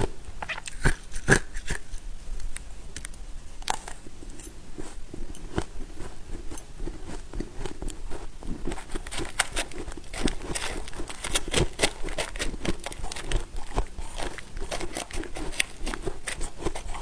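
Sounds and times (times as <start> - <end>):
chewing crunchy frost: 0.0 - 2.0, 3.7 - 17.0
metal spoon scraping frost: 3.8 - 17.0.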